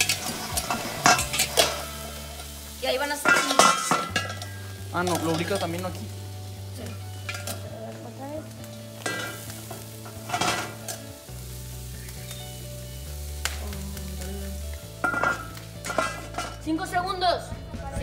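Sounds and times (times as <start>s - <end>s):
low bass notes: 0.0s - 3.2s, 3.9s - 18.0s
metal lids clinking: 0.0s - 6.0s, 7.2s - 7.6s, 9.0s - 11.1s, 15.0s - 16.6s
steaks sizzling on a grill: 0.0s - 17.4s.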